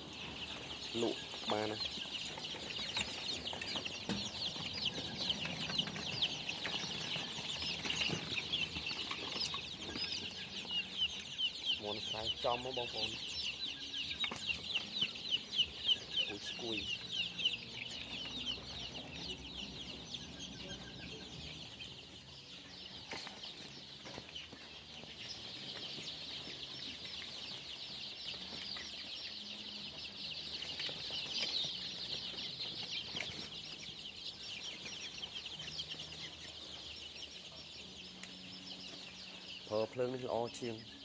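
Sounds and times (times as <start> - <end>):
chicks peeping: 0.0 - 41.0.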